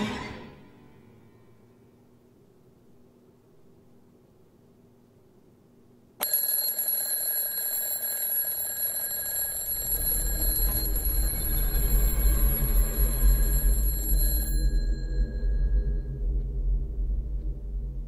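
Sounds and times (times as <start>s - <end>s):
piercing high-pitched ringing tone: 9.5s - 16.3s
deep low rumble: 15.2s - 18.0s.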